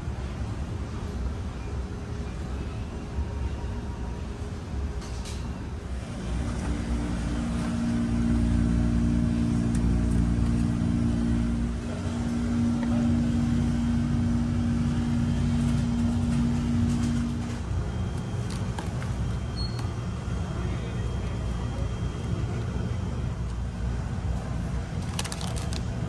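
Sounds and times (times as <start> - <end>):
ferry engines droning: 0.0 - 26.0
two-tone hum: 6.0 - 24.0.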